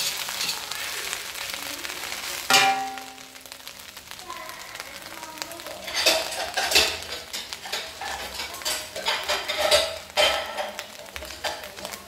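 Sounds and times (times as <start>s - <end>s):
metal utensil scraping cookware: 0.0s - 0.6s, 5.8s - 11.7s.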